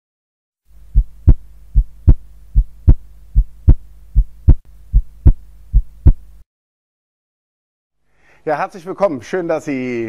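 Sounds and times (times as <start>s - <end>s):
low steady hum: 0.7s - 6.4s
heartbeat thumps: 0.8s - 6.3s.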